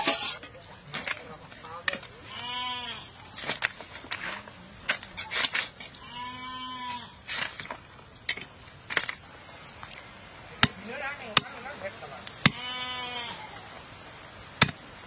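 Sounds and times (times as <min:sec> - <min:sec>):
high insect drone: 0:00.0 - 0:15.0
farm animal calling: 0:02.2 - 0:03.1, 0:12.5 - 0:13.7.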